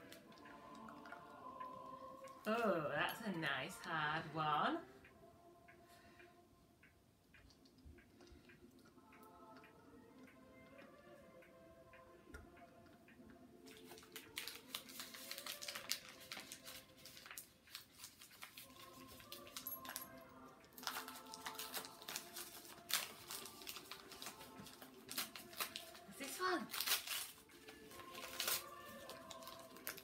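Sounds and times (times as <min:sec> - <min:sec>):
faint background music: 0:00.0 - 0:30.0
wrapping paper crinkling and tearing: 0:13.8 - 0:19.9, 0:20.8 - 0:30.0.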